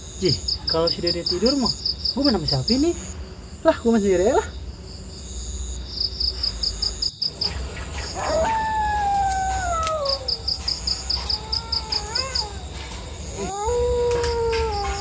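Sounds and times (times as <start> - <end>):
crickets chirping: 0.0 - 15.0
animal howling: 7.3 - 15.0.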